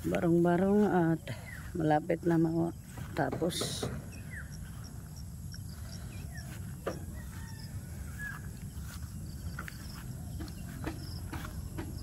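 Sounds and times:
bird chirps: 3.9 - 12.0.

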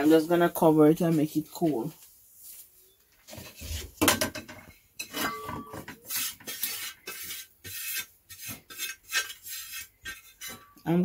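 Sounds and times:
metal pot and lid clattering: 4.0 - 6.6, 10.0 - 10.8.

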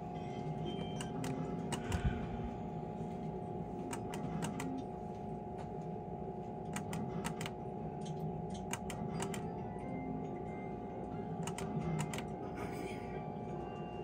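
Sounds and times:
steady electronic hum: 0.0 - 14.0
sharp clicks of game machine: 0.8 - 2.2, 3.8 - 4.9, 6.6 - 9.6, 11.3 - 12.5.

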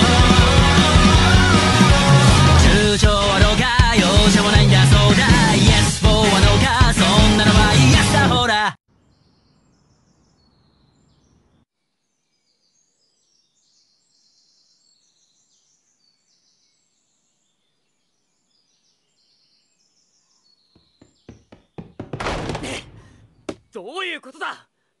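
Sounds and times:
birds chirping: 12.4 - 24.3.

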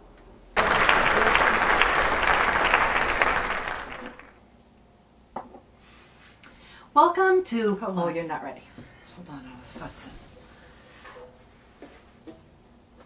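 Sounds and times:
crowd applause: 0.6 - 4.3.

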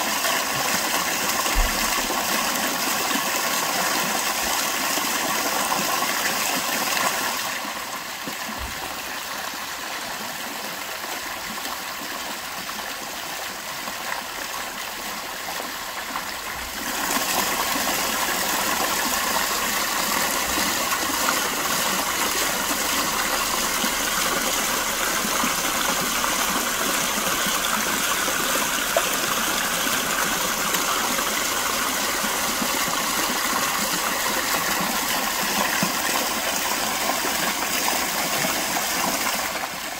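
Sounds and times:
water splashing over rocks: 0.0 - 39.9.

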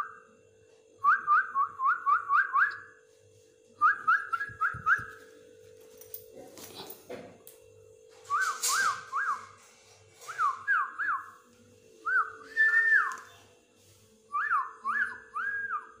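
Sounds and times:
person whistling: 12.0 - 13.2.

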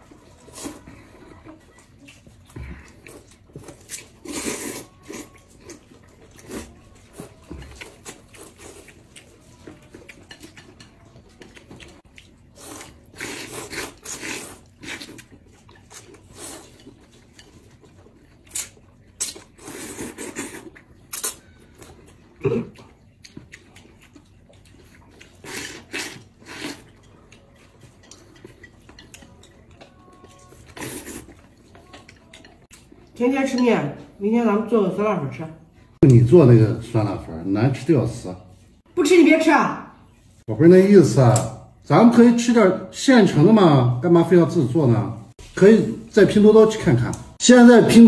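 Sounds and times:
chopsticks clicking on bowls: 9.1 - 12.3
people slurping noodles: 12.5 - 15.2, 19.5 - 21.4, 25.2 - 27.0.

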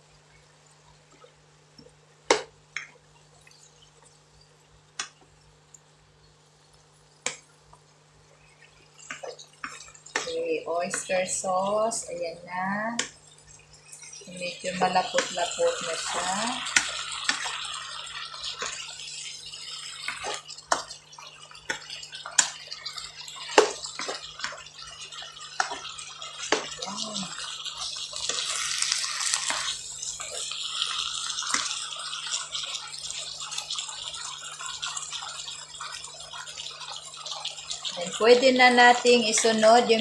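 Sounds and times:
food sizzling in a wok: 0.0 - 40.0
spatula scraping and tapping pan: 9.0 - 11.4, 25.4 - 26.8.

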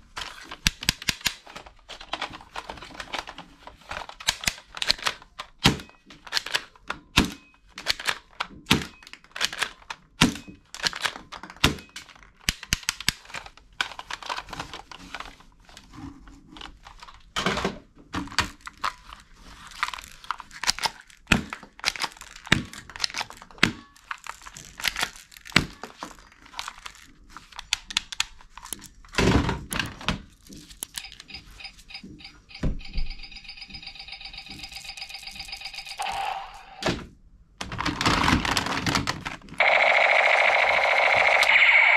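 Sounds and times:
plastic toy guns clattering: 0.1 - 15.2, 37.6 - 39.6
electronic tone: 39.6 - 41.9.

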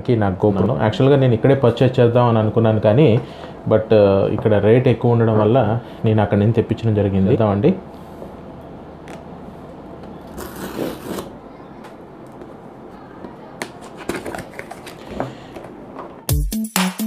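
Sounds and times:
cardboard box scrapes and clicks: 10.3 - 11.3
background music: 16.3 - 17.0.

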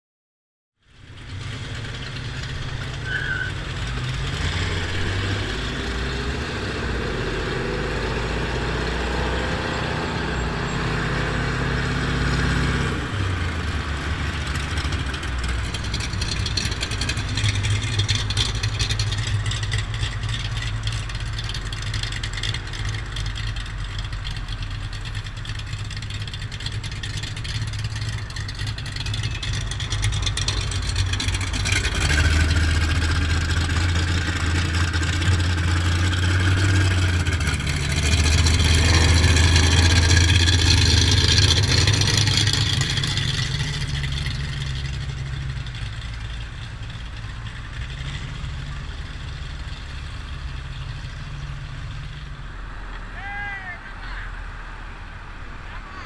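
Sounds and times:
motorcycle engine running: 13.3 - 52.4.

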